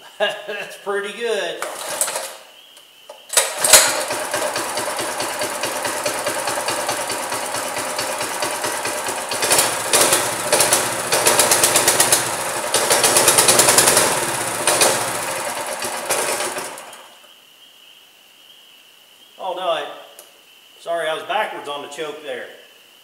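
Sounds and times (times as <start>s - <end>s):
small engine bang on starting: 3.3s - 17.1s
small engine running and revving: 3.5s - 17.1s.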